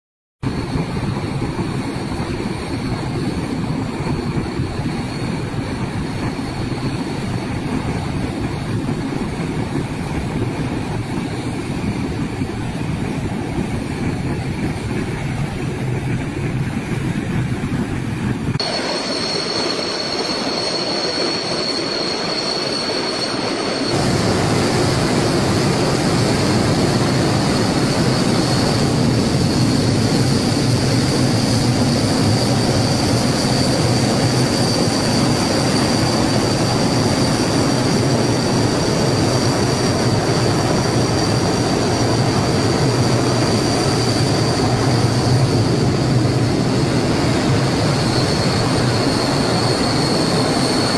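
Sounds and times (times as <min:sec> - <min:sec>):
propeller aircraft engines taxiing: 0:00.4 - 0:50.9
thin high whine: 0:17.5 - 0:50.9.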